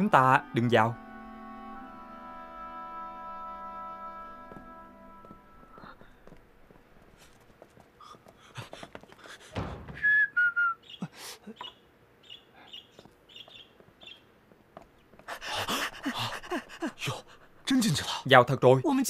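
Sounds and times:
scuffing footsteps: 0:04.4 - 0:10.1, 0:13.0 - 0:15.4
thud: 0:09.5 - 0:10.3
songbirds whistling and chirping: 0:10.0 - 0:14.3.

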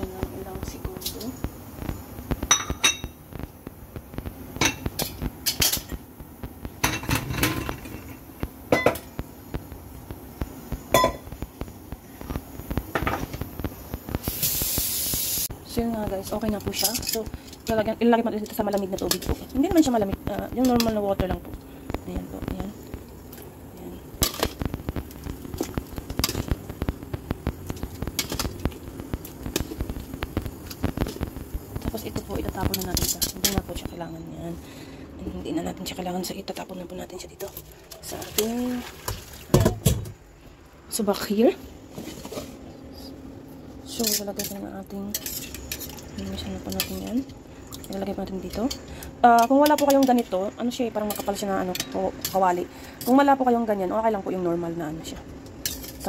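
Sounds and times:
water boiling in a pot: 0:00.0 - 0:56.0
cookware knocking and clinking: 0:11.0 - 0:11.2.

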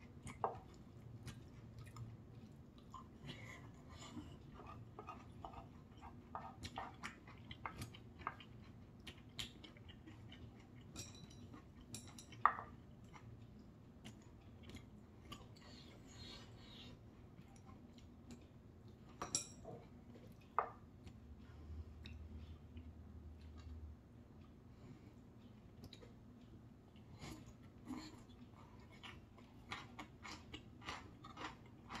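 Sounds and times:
chewing: 0:00.0 - 0:32.0
utensils clicking on plate and bowls: 0:10.9 - 0:12.7.

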